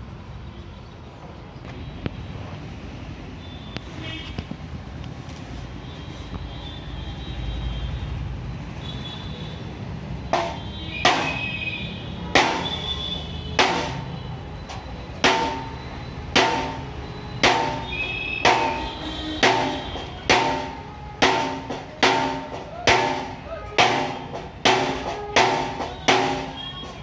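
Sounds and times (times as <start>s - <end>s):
hammer blows with metallic ring: 10.3s - 27.0s.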